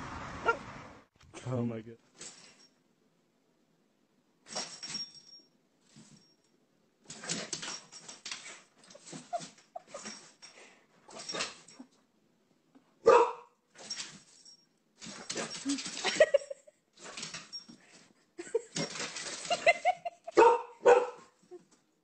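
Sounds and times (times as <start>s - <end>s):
dog barking: 13.0s - 13.5s, 20.3s - 21.4s.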